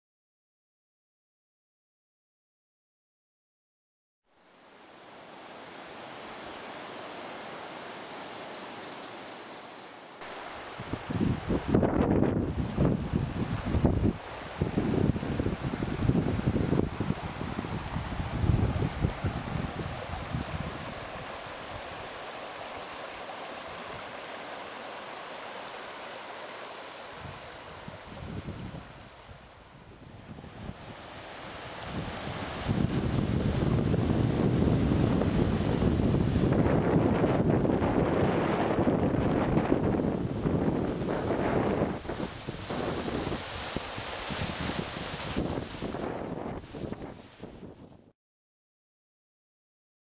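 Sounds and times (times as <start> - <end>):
waterfall rushing: 4.5 - 47.5
wind buffeting microphone: 10.7 - 22.2, 27.2 - 48.0.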